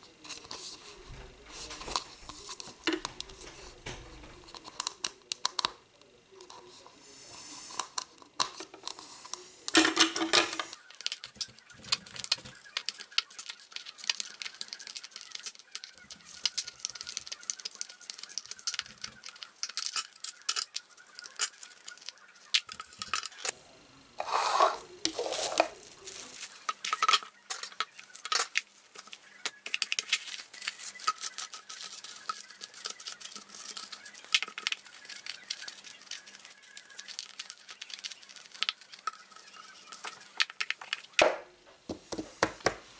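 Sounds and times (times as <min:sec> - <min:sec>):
cling film rustling: 0:24.7 - 0:41.2.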